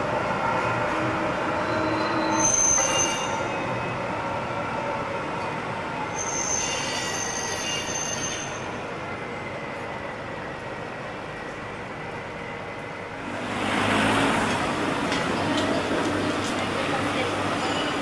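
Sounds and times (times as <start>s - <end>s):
tram rumbling on track: 0.0s - 18.0s
tram wheels squealing: 0.7s - 4.2s, 6.0s - 8.9s, 14.4s - 18.0s.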